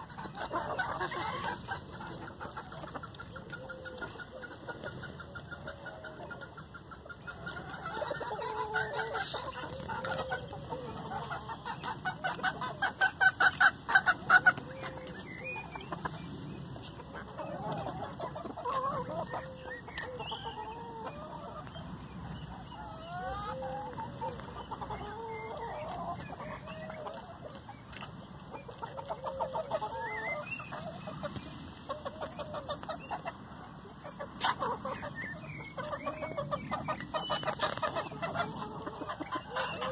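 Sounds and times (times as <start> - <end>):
hens clucking: 0.0 - 39.9.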